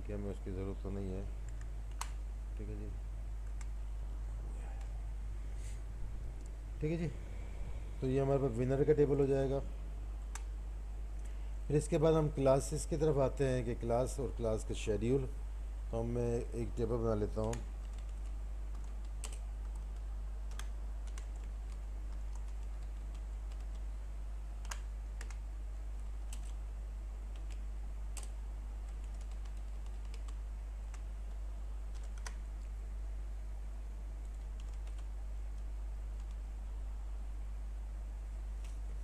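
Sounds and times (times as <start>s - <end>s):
steady low hum: 0.0s - 39.0s
computer keyboard keystrokes: 1.4s - 2.2s, 17.4s - 23.9s, 24.6s - 25.4s, 26.0s - 26.6s, 27.3s - 32.7s, 34.2s - 36.4s.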